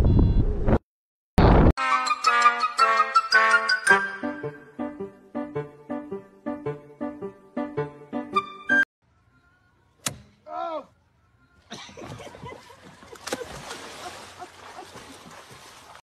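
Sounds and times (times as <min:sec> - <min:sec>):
water splashing: 0:11.8 - 0:16.0
body hitting water: 0:12.0 - 0:16.0.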